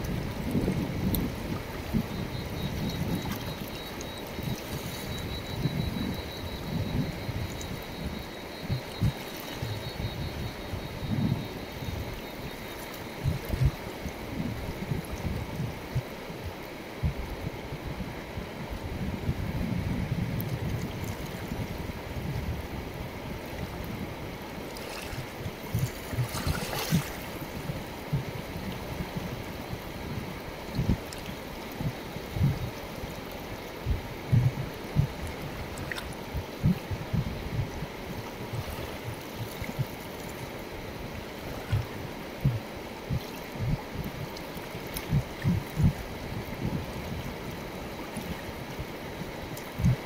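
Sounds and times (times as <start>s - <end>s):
river rushing over stones: 20.9s - 50.0s
short low thumps: 33.9s - 35.2s.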